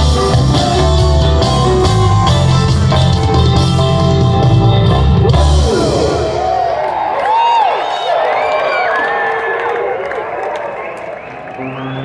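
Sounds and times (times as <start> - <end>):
rock band playing loudly: 0.0 - 7.1
crowd whooping and whistling: 5.8 - 12.0.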